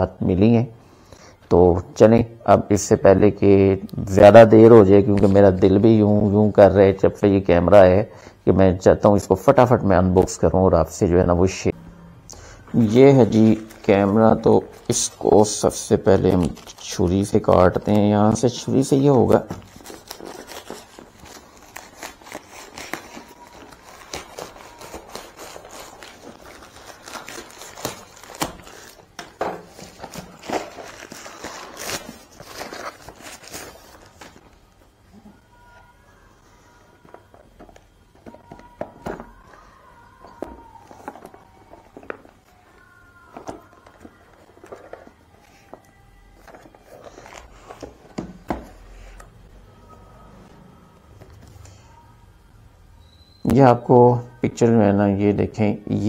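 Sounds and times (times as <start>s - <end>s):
plastic crackling and rustling: 12.7s - 35.3s, 36.8s - 49.2s
cardboard box handling rustles: 19.2s - 34.6s.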